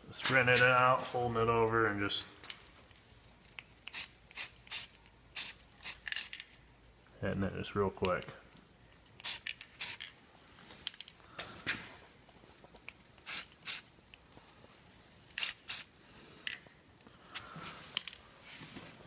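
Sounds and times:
crickets chirping: 0.0 - 19.0
spray-paint can hissing: 3.9 - 6.4, 9.2 - 10.1, 13.2 - 13.9, 15.3 - 15.9.

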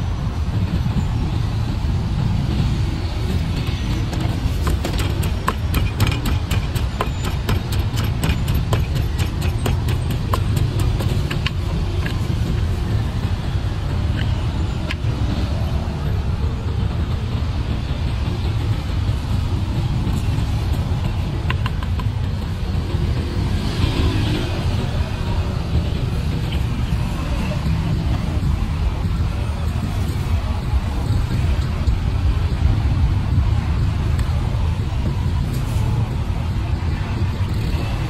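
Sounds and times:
low rumble of traffic: 0.0 - 38.0
wooden pestle knocking in mortar: 4.1 - 12.2.

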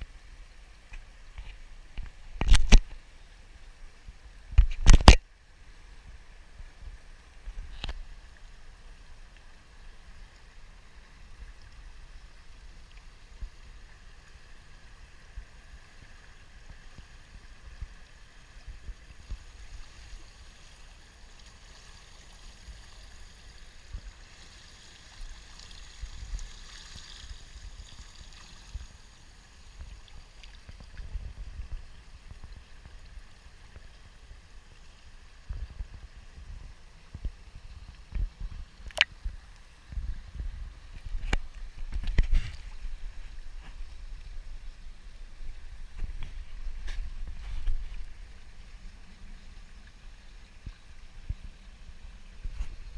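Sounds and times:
pool water lapping: 8.1 - 39.9
wind rumbling on microphone: 25.2 - 29.1, 29.7 - 34.5, 35.2 - 52.9.

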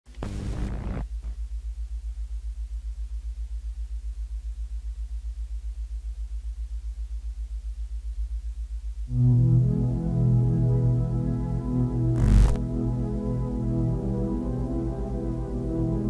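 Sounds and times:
pulsing electronic hum: 0.2 - 1.1, 9.1 - 16.0.

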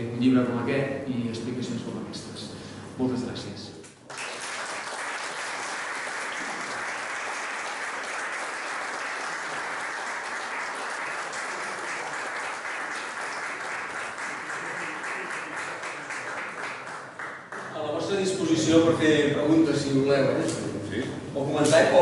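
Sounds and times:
audience applauding: 4.1 - 17.8.

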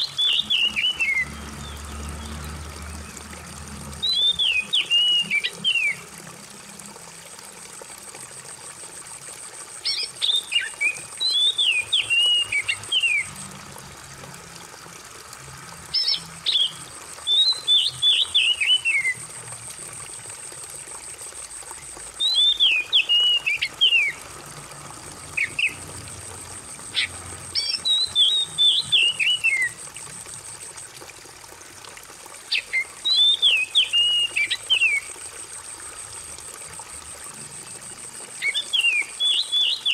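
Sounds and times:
bird singing whistled notes: 0.0 - 1.8, 4.0 - 6.0, 9.9 - 13.3, 16.0 - 19.2, 22.2 - 24.2, 27.0 - 29.8, 32.5 - 35.0, 38.4 - 39.9
trickling water: 0.0 - 39.9.

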